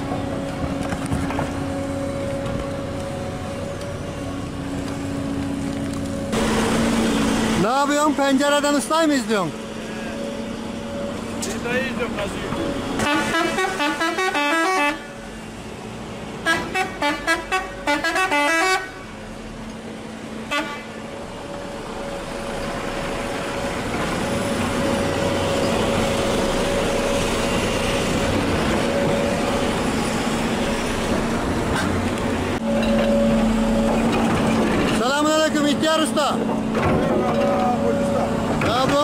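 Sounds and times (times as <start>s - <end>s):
diesel engine running: 0.0s - 39.0s
musical vehicle horn tune: 13.0s - 15.2s, 16.4s - 19.2s, 20.5s - 21.0s.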